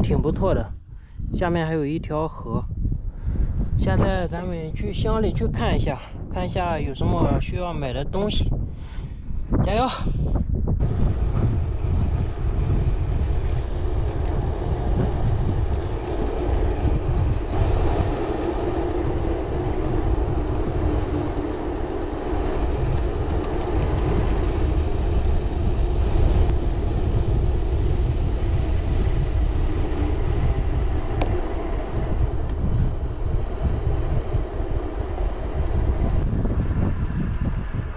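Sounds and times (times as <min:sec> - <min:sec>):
wind buffeting microphone: 0:00.0 - 0:37.9
bicycle tyre noise: 0:10.8 - 0:37.9.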